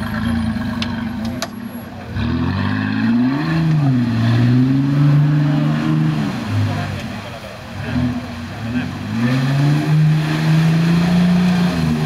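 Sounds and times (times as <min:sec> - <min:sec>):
off-road engine revving: 0:00.0 - 0:12.0.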